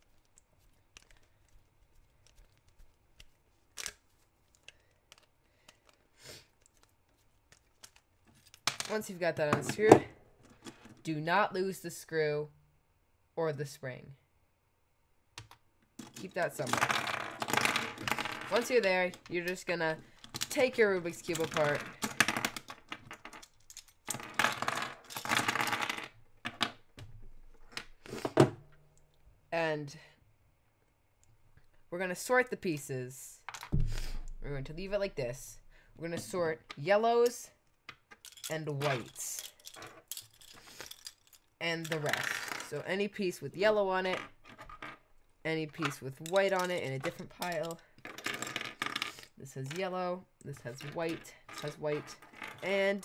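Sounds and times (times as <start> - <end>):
plastic cube being handled: 0.0 - 8.7
plastic cube pieces clicking: 15.4 - 26.8, 45.8 - 49.8
loose pieces clattering on table: 16.0 - 26.8, 37.9 - 42.8, 45.8 - 49.8, 50.7 - 52.8
screwdriver clicking and scraping: 45.8 - 47.8.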